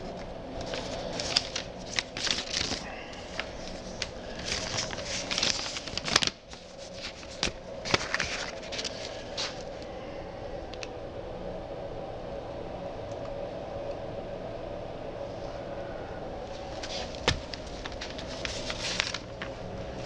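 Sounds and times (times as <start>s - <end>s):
rustling with clicks and crackles: 0.0s - 9.9s, 16.4s - 20.0s
steady room hum: 0.0s - 20.0s.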